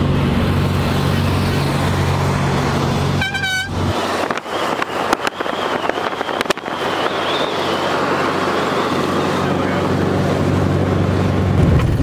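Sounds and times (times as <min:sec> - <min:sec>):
rushing wind and road noise: 0:00.0 - 0:12.0
wind buffeting microphone pops: 0:04.0 - 0:07.7, 0:11.4 - 0:12.0.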